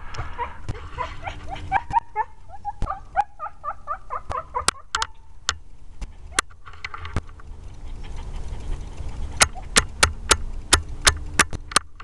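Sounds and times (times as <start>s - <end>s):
dog whining: 0.2s - 5.1s
sharp clicks: 4.3s - 12.0s.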